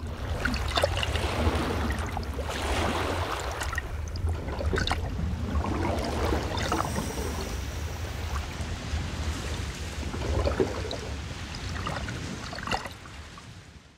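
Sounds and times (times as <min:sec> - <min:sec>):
sea water splashing: 0:00.0 - 0:13.7
steady low rumble: 0:03.5 - 0:11.8.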